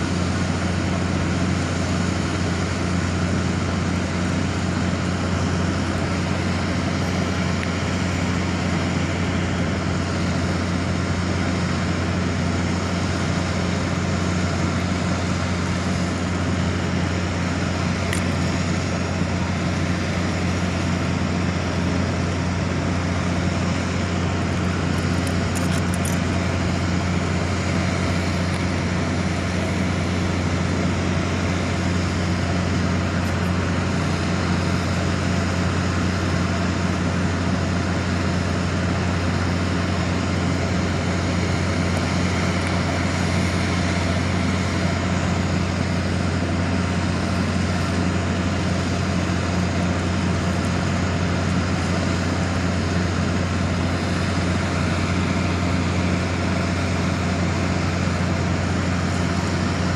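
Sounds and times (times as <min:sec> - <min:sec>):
constant wash of noise: 0:00.0 - 0:59.9
low mechanical hum: 0:00.0 - 0:59.9.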